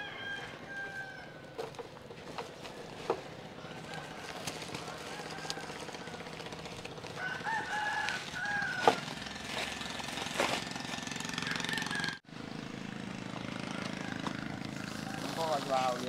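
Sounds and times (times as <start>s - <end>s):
rooster crowing: 0.0s - 1.8s, 2.7s - 10.1s, 10.9s - 12.2s, 13.6s - 15.7s.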